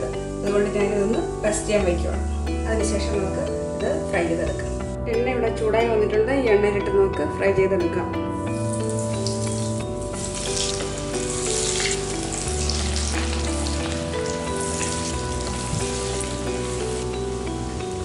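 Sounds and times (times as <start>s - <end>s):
background music: 0.0s - 18.0s
food deep-frying in hot oil: 8.6s - 18.0s.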